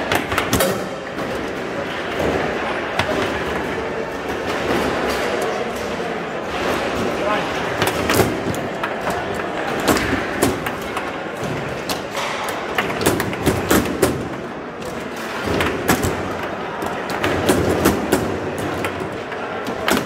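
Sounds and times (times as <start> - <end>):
foosball ball knocks and thuds: 7.8 - 14.4.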